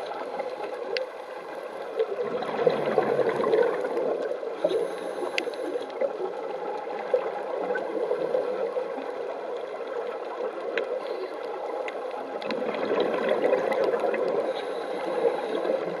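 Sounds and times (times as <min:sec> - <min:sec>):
muffled underwater rushing: 0:00.0 - 0:16.0
sharp clicks underwater: 0:00.0 - 0:16.0.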